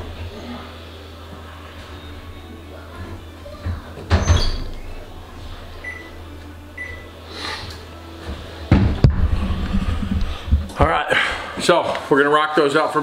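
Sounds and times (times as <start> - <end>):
kitchen timer beeps: 5.8 - 6.1, 6.8 - 7.1
thuds: 8.7 - 10.8.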